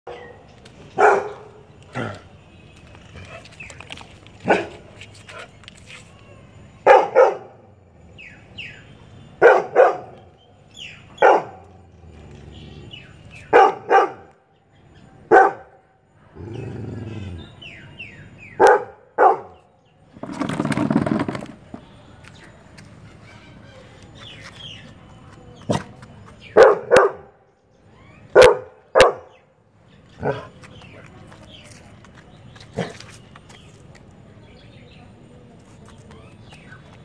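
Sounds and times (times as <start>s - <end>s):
birds chirping: 0.1s - 21.0s, 21.6s - 37.0s
dog barking: 1.0s - 1.6s, 4.4s - 4.8s, 6.8s - 7.6s, 9.4s - 10.2s, 11.2s - 11.7s, 13.5s - 14.3s, 15.3s - 15.8s, 18.6s - 19.6s, 26.6s - 27.4s, 28.3s - 29.4s.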